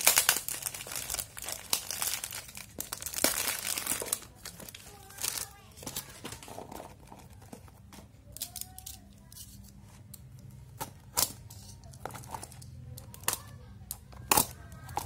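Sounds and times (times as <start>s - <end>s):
plastic wrap crinkling: 0.0s - 7.6s.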